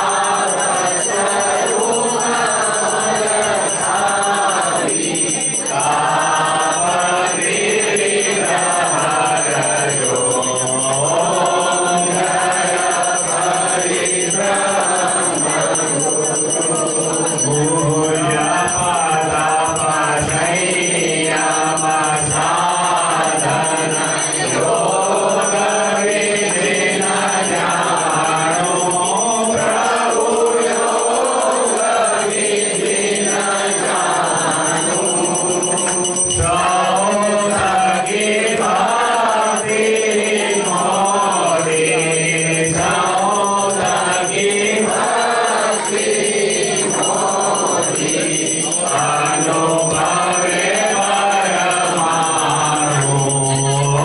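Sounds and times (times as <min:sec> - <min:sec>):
crowd singing a devotional hymn: 0:00.0 - 0:54.0.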